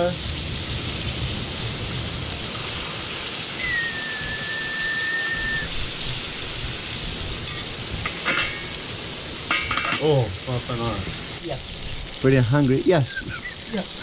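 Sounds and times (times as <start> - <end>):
fish sizzling in a pan: 0.0 - 14.0
thin whistling tone: 3.6 - 5.8, 13.0 - 14.0.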